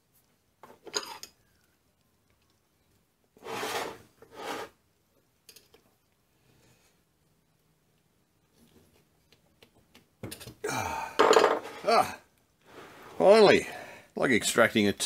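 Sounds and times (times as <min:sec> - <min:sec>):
metal scraping on bench: 0:03.4 - 0:04.8.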